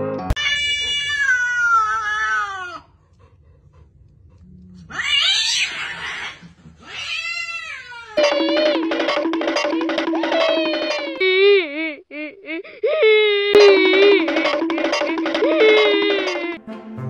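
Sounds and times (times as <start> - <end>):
cat meowing: 0.4 - 2.8, 4.9 - 8.2
cat yowling: 0.4 - 2.9, 4.9 - 8.2.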